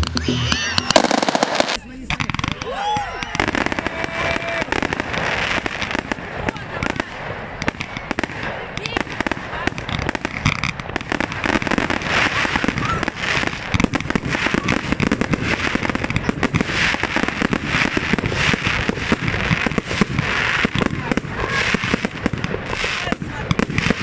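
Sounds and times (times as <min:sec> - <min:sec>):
fireworks bangs and crackling: 0:00.0 - 0:24.0
fireworks shells launching: 0:00.0 - 0:24.0.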